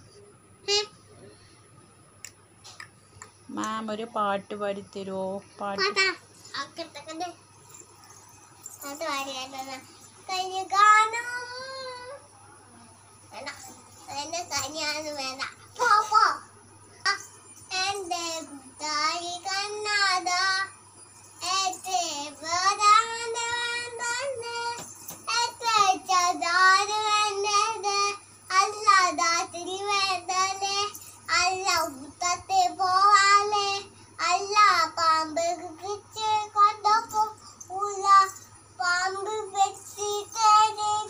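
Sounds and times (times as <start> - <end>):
child singing unaccompanied: 5.6 - 7.4, 8.8 - 12.3, 13.3 - 41.0.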